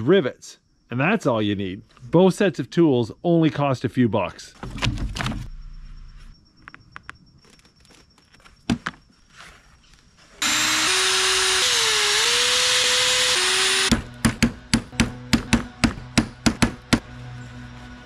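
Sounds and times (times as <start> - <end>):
power drill running: 10.4 - 13.9
hammer striking rivets: 13.6 - 17.0.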